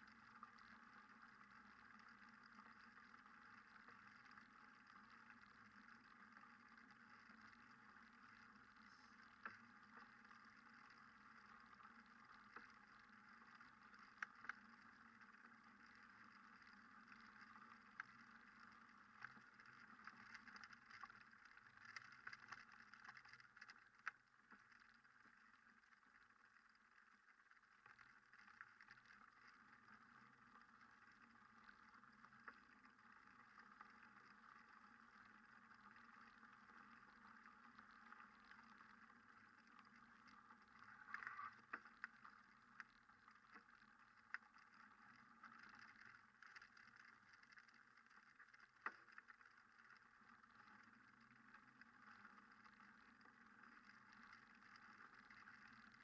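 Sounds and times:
faint steady hiss: 0.0 - 56.0
soft clicks: 27.8 - 56.0.

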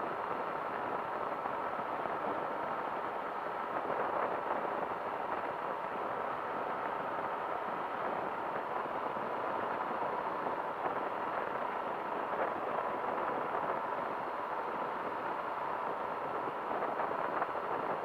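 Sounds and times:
engine and propeller drone: 0.0 - 18.0.

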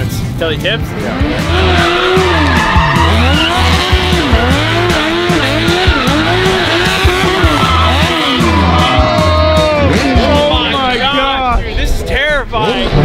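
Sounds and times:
motorcycle engine revving: 0.6 - 10.9
tyres skidding and squealing: 0.6 - 13.0
music with bass beat: 1.0 - 11.2.

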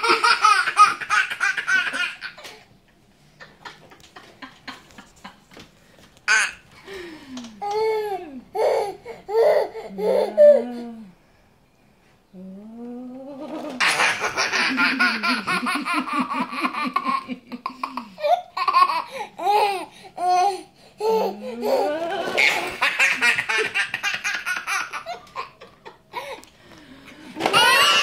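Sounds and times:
baby belly laughing: 0.0 - 2.6, 13.4 - 26.4, 27.4 - 28.0.

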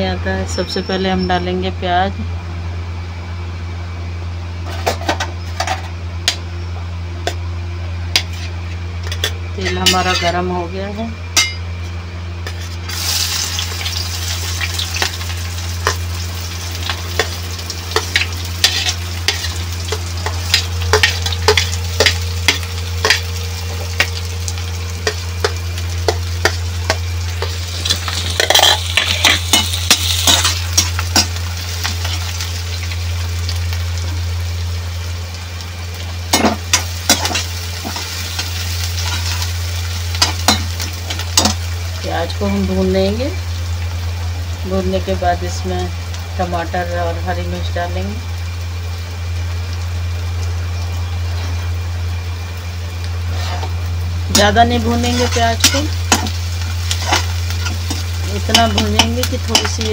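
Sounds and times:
steady low hum: 0.0 - 59.9
onions sizzling in hot oil: 12.4 - 59.9.

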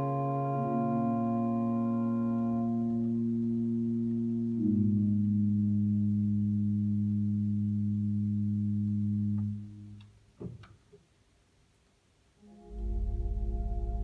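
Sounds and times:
organ chord: 0.0 - 9.3, 12.4 - 14.0
pulsing bass: 12.6 - 14.0.

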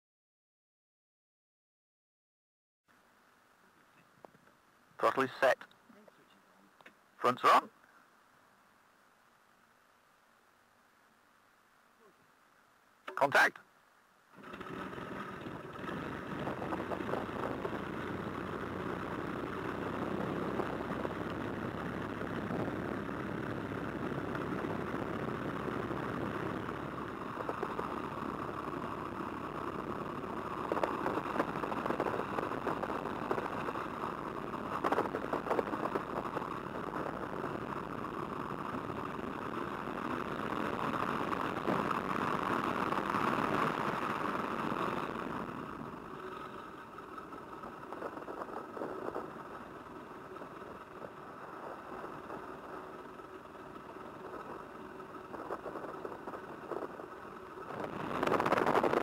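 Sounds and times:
propeller aircraft engine running: 14.3 - 59.0.

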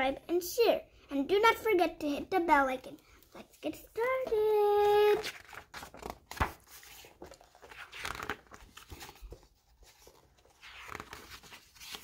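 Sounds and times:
book pages turning: 3.2 - 12.0.

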